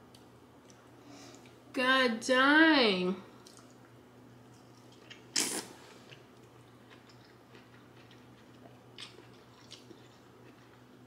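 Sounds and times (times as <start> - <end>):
chewing with wet mouth clicks: 3.4 - 4.0, 4.7 - 11.0
noodle slurping: 5.4 - 5.8.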